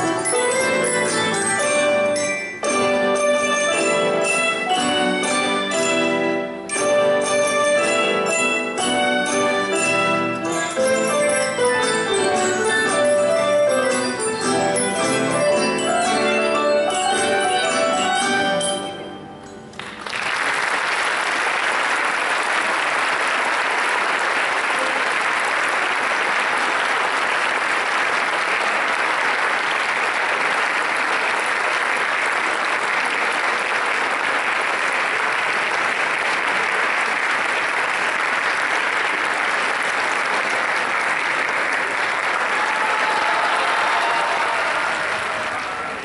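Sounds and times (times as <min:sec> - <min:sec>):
audience applause: 0:19.8 - 0:46.0.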